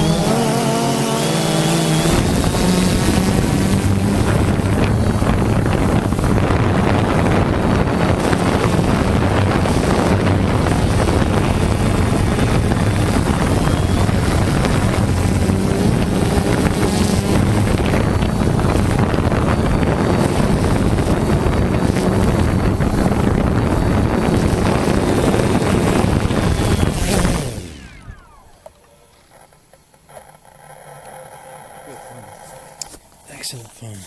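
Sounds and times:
wind rushing over microphone: 0:00.0 - 0:28.3
drone motors humming: 0:00.0 - 0:33.2.

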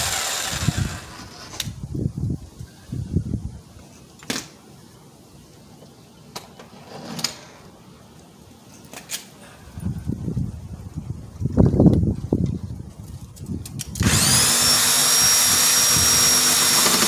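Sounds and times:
electric jigsaw cutting wood: 0:00.0 - 0:01.6, 0:14.0 - 0:17.0.

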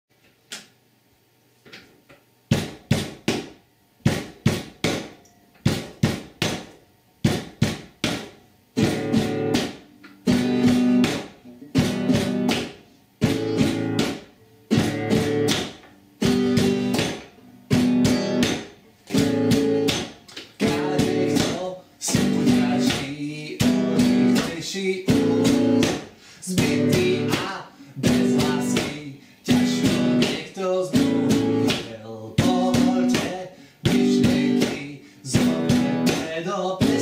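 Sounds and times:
nylon-string guitar strummed: 0:08.8 - 0:37.0.

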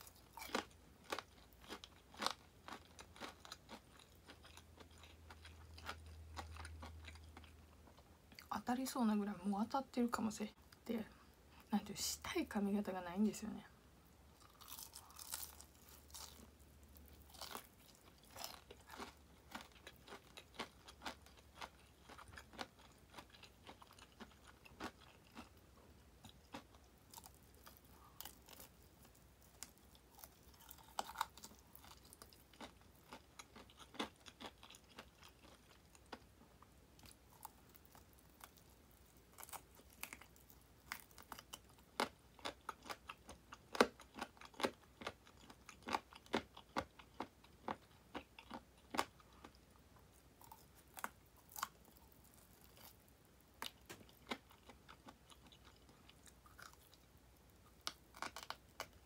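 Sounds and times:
crunching fried chicken: 0:00.0 - 0:07.7, 0:14.4 - 0:25.6, 0:26.2 - 0:49.6, 0:50.4 - 0:59.0
quiet chewing: 0:14.4 - 0:59.0.

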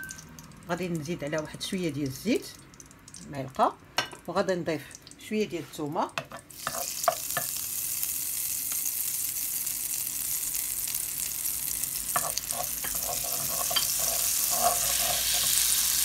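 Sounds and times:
garlic sizzling in a frying pan: 0:00.0 - 0:16.0
wooden spoon scraping a pan: 0:12.2 - 0:15.8.

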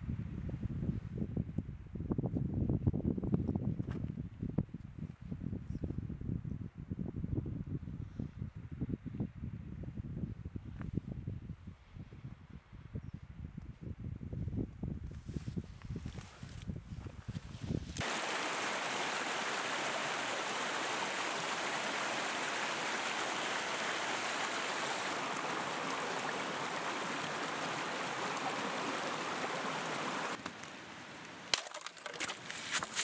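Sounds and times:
rocky mountain stream rushing: 0:18.0 - 0:33.0
boot breaking thin ice: 0:31.5 - 0:33.0.

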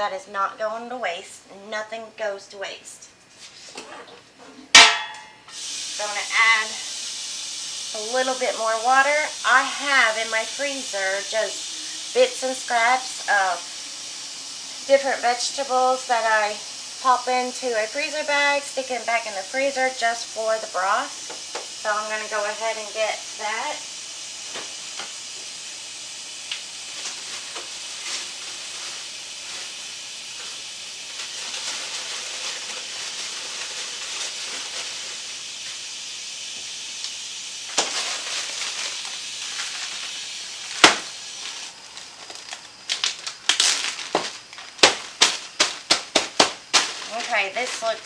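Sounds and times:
sharp knock: 0:04.8 - 0:05.3
tap water filling a pot: 0:05.5 - 0:23.6, 0:24.2 - 0:41.6
plastic bag crinkling: 0:31.1 - 0:35.3, 0:37.7 - 0:48.0.

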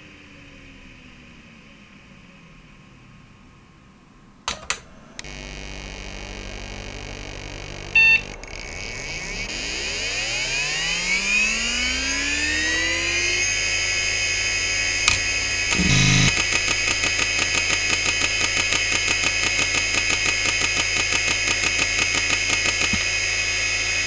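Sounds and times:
computer humming: 0:00.0 - 0:24.0
hard drive spinning up whine: 0:00.0 - 0:24.0
clicks: 0:04.5 - 0:05.4, 0:15.1 - 0:23.1
short computer beep: 0:08.0 - 0:08.3.

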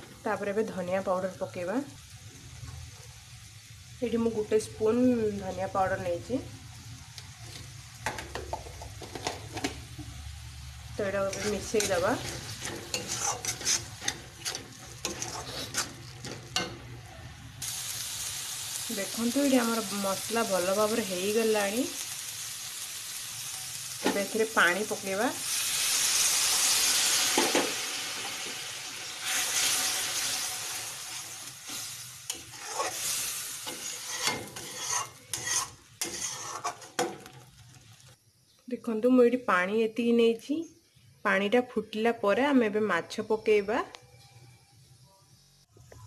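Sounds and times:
spices sizzling in a pan: 0:00.0 - 0:38.6
metal spatula scraping pan: 0:11.1 - 0:16.9, 0:29.2 - 0:37.4.

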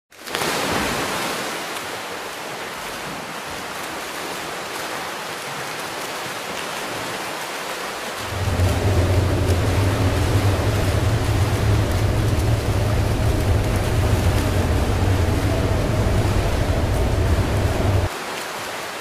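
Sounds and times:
steady rushing noise: 0:08.2 - 0:18.1.

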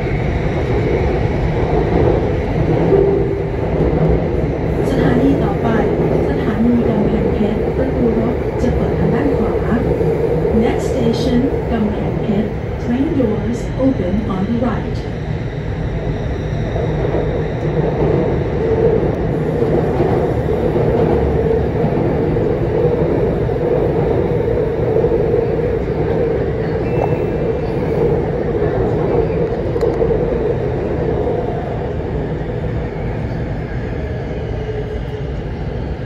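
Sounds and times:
metro train rumble: 0:00.0 - 0:36.0.

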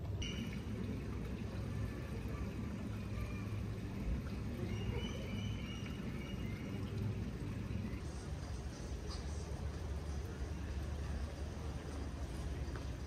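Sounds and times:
distant voices: 0:00.0 - 0:13.0.

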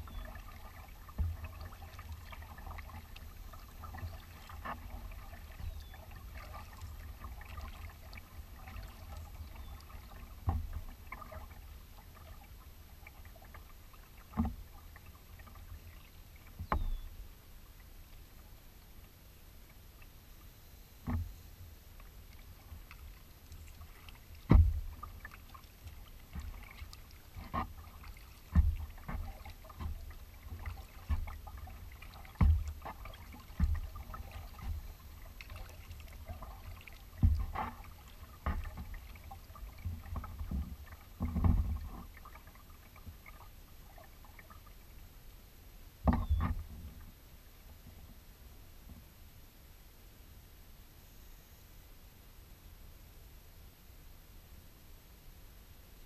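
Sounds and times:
waves slapping against hull: 0:00.0 - 0:17.2, 0:21.0 - 0:44.9, 0:46.0 - 0:48.2
paddle strokes: 0:00.0 - 0:45.0, 0:46.0 - 0:48.2.

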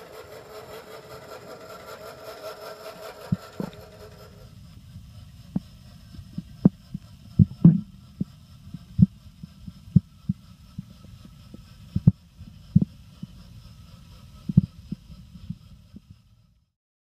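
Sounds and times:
muffled underwater boat hum: 0:02.8 - 0:16.4.

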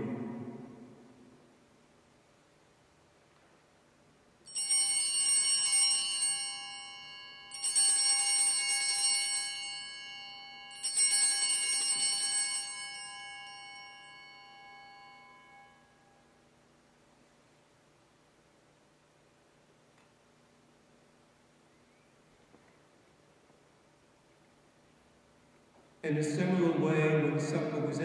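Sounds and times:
altar bells jangling: 0:04.5 - 0:16.2.

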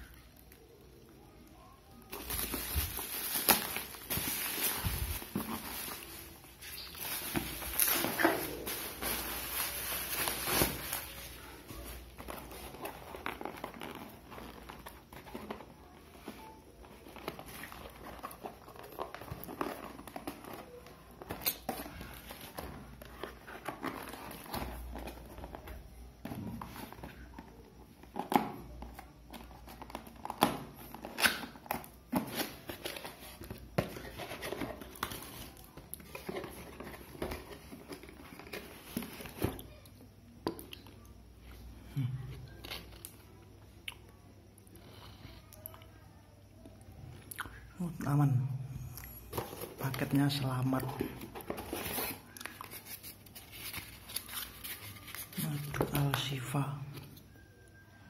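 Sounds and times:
bubble wrap crinkling: 0:00.0 - 0:39.8, 0:48.8 - 0:57.2.

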